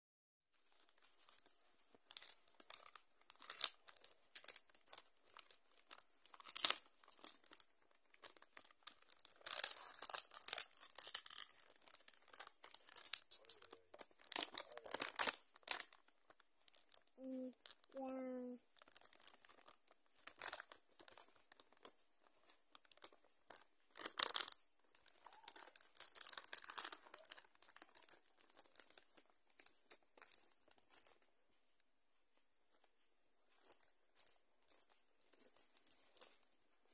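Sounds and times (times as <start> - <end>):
plastic packaging tearing and crumpling: 0.6 - 17.9, 18.8 - 22.0, 22.7 - 31.2.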